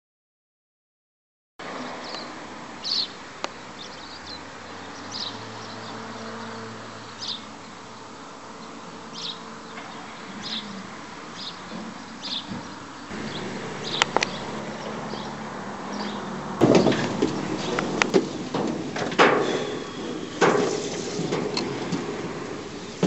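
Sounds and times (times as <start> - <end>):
engines idling: 9.7 - 23.0.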